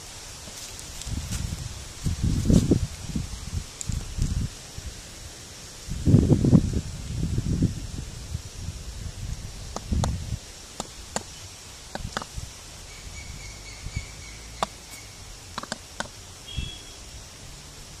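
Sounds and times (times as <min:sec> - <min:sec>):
sharp clicks and taps: 0:09.7 - 0:10.2, 0:11.9 - 0:12.3, 0:15.5 - 0:16.2
faint thin high calls: 0:16.4 - 0:17.1.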